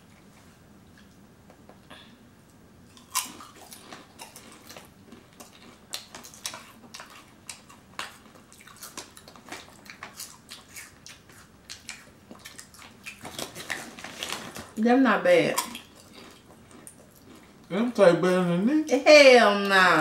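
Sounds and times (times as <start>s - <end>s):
potato chips crunching: 2.9s - 14.8s, 15.5s - 17.6s.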